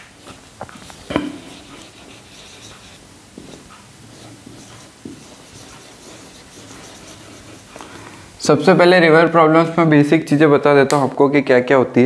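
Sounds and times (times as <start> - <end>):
pen scratching on surface: 0.2 - 8.0.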